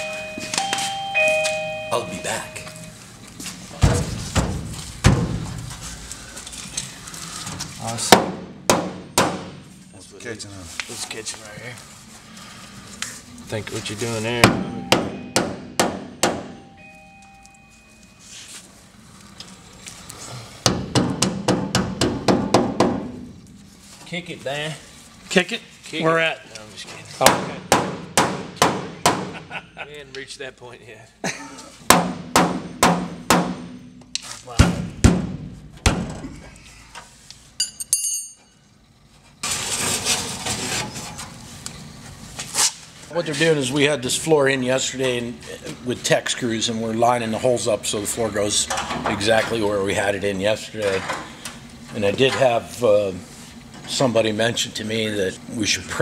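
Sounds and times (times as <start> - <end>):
short high metallic ring: 0.0 - 3.0, 14.6 - 15.8, 37.6 - 38.7
mallet striking sheet steel: 14.4 - 16.6, 31.9 - 34.0
metal clinks: 37.6 - 38.7.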